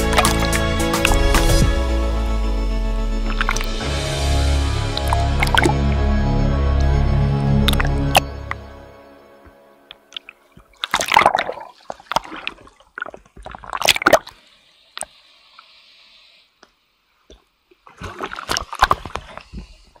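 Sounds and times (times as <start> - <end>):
sea water sloshing and splashing: 0.0 - 1.6, 3.2 - 3.9, 4.8 - 6.0, 9.9 - 14.4, 17.8 - 20.0.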